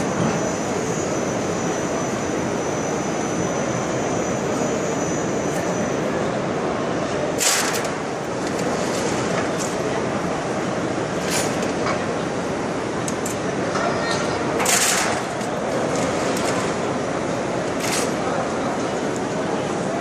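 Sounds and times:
loud machinery roar: 14.4 - 19.9.

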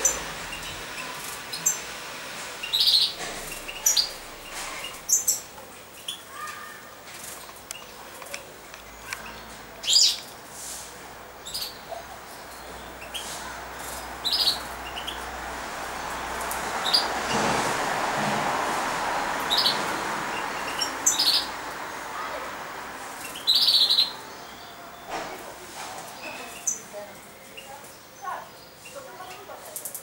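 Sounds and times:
birds chirping: 0.0 - 10.4, 11.3 - 17.4, 19.2 - 30.0.

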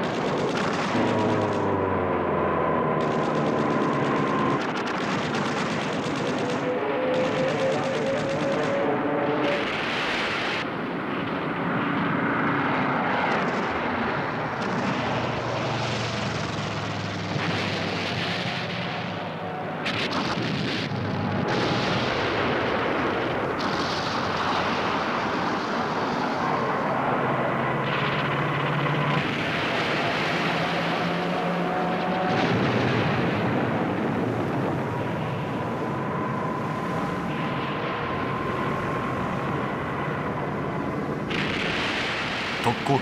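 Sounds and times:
gunfire and explosions: 0.0 - 26.3.

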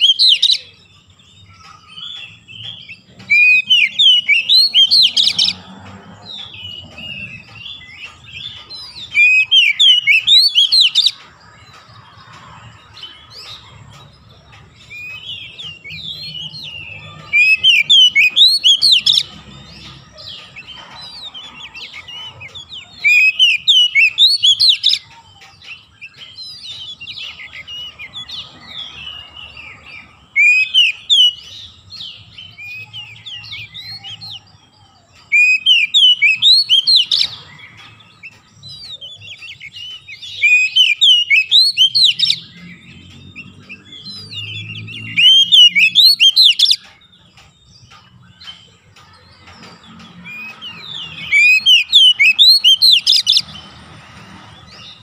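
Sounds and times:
bird singing whistled phrases: 0.0 - 0.8, 1.7 - 5.6, 6.6 - 11.2, 14.9 - 19.3, 23.0 - 25.0, 30.3 - 31.5, 35.3 - 37.4, 38.9 - 42.7, 43.4 - 46.8, 50.4 - 53.4.

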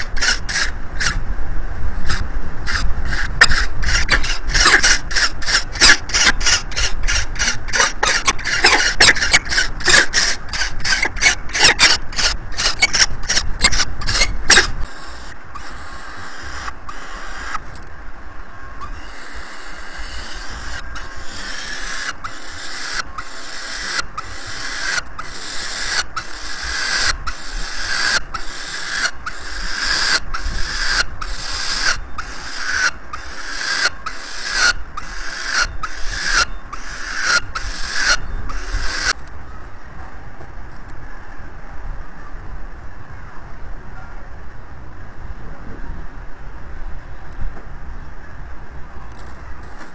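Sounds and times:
falcon chicks screeching: 0.0 - 1.2, 2.0 - 17.8, 18.7 - 39.2.

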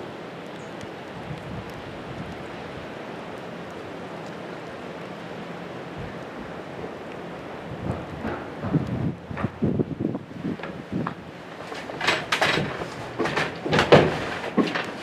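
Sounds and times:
hail falling: 6.1 - 15.0
wind rushing: 7.6 - 11.3.

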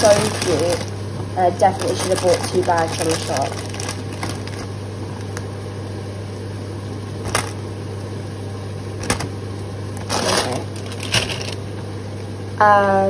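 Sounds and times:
plastic packaging crinkling: 0.0 - 5.6, 7.2 - 7.7, 10.0 - 11.7
steady low hum: 0.0 - 13.0.

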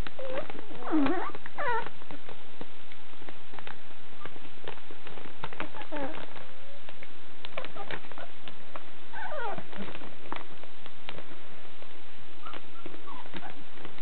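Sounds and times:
puppies squealing: 0.2 - 1.9, 9.2 - 9.7, 12.4 - 13.6
puppy squeak: 0.2 - 1.9, 9.2 - 9.6, 12.4 - 13.6.

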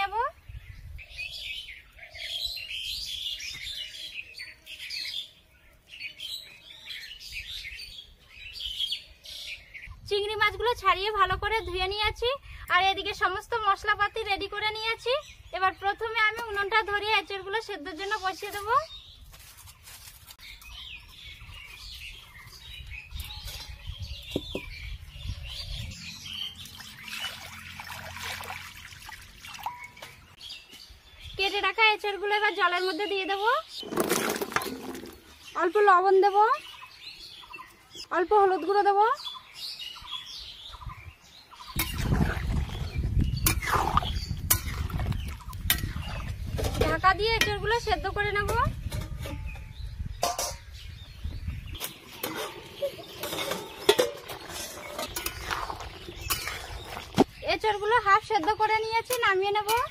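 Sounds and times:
birds chirping: 0.0 - 59.9
water poured into a metal wok: 26.7 - 29.9, 52.2 - 57.2.

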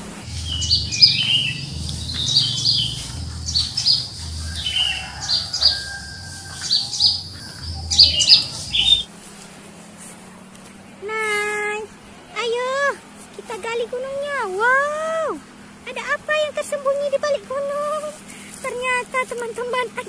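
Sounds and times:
birds chirping: 0.0 - 9.1.

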